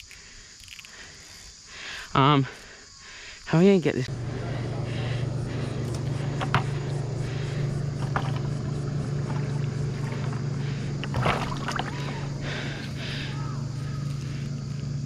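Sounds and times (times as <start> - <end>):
steady low hum: 4.0 - 15.0
bucket splashing in river water: 4.6 - 14.4.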